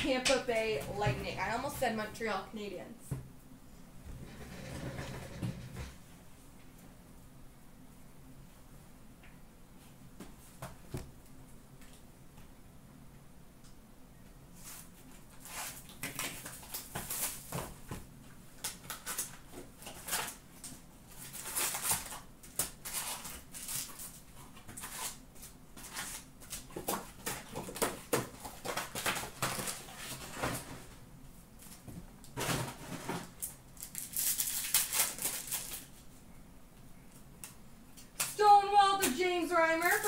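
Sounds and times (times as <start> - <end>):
wrappers crinkling and ripping: 14.6 - 17.7, 18.6 - 30.7, 32.4 - 36.1, 39.6 - 40.0.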